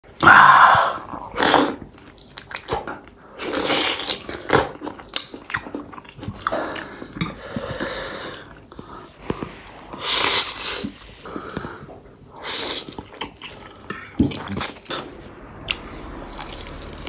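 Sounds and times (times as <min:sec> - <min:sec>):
biting and chewing: 0:15.7 - 0:17.0.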